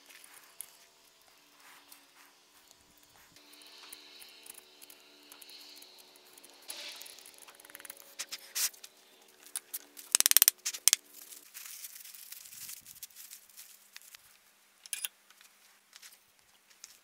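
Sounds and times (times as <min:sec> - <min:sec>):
faint steady hum: 0:00.0 - 0:16.5
newspaper rustling: 0:10.6 - 0:14.2.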